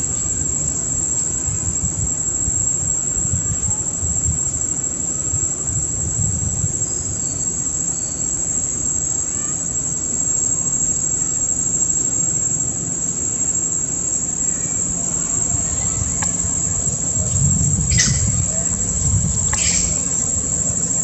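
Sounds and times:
insects droning: 0.0s - 21.0s
faint high chirps: 14.4s - 21.0s.

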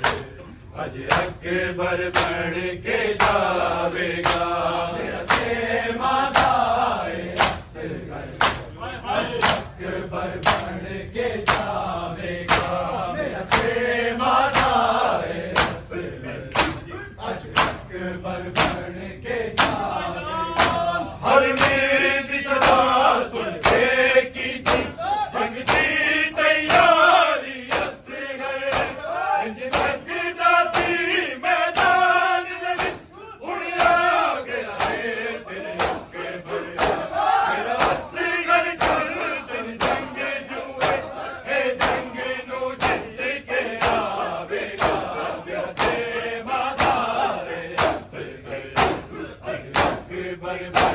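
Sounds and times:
chest-beating slaps: 0.0s - 1.5s, 2.1s - 2.4s, 3.2s - 3.6s, 4.2s - 4.6s, 5.3s - 5.6s, 6.3s - 6.7s, 7.3s - 7.7s, 8.3s - 8.7s, 9.4s - 9.8s, 10.4s - 10.8s, 11.4s - 11.8s, 12.4s - 12.8s, 13.5s - 13.8s, 14.5s - 14.8s, 15.5s - 15.9s, 16.5s - 16.9s, 17.5s - 17.9s, 18.5s - 18.9s, 19.5s - 19.9s, 20.6s - 21.9s, 22.5s - 22.9s, 23.6s - 23.9s, 24.6s - 25.0s, 25.6s - 26.0s, 26.6s - 27.0s, 27.6s - 28.0s, 28.6s - 29.0s, 29.6s - 30.0s, 30.7s - 31.0s, 31.7s - 32.0s, 32.8s - 33.1s, 33.8s - 34.1s, 34.7s - 35.1s, 35.7s - 37.1s, 37.8s - 38.1s, 38.8s - 39.2s, 39.8s - 40.1s, 40.8s - 41.1s, 41.8s - 42.1s, 42.8s - 43.1s, 43.8s - 44.2s, 44.8s - 46.1s, 46.8s - 47.1s, 47.7s - 48.1s, 48.7s - 50.1s
crowd of men chanting: 0.0s - 50.9s.

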